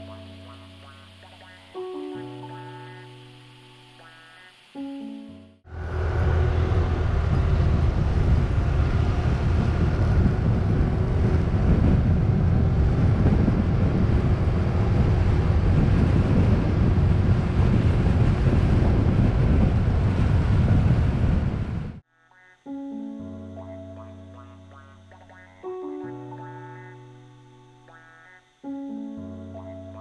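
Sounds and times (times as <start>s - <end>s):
wind buffeting microphone: 5.7s - 22.0s.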